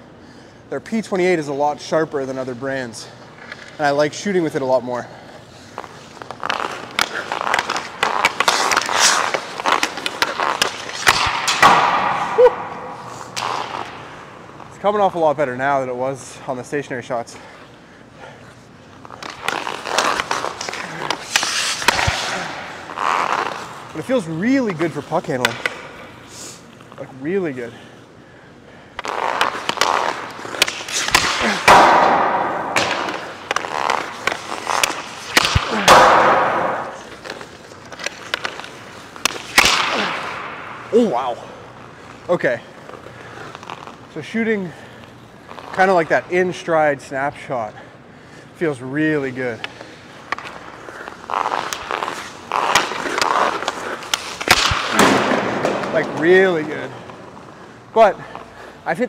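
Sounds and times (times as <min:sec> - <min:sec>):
skates scraping on ice: 0:00.8 - 0:15.8, 0:17.0 - 0:28.0, 0:28.8 - 0:47.8, 0:48.6 - 0:59.0
stick tapping puck: 0:05.9 - 0:14.0, 0:49.6 - 0:56.0
puck shot crack: 0:06.3 - 0:14.5, 0:19.1 - 0:26.2, 0:29.0 - 0:41.7, 0:49.6 - 0:57.5.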